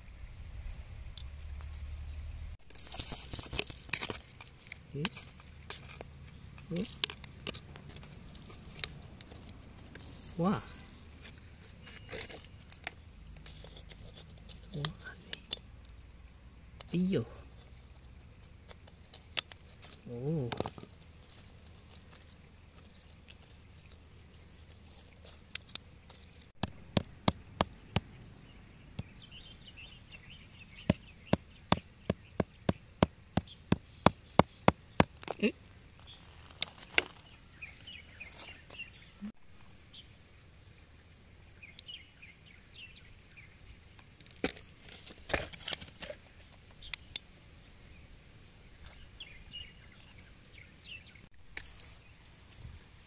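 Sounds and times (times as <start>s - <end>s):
metal tool chipping rock: 26.2s - 28.1s, 30.9s - 35.4s.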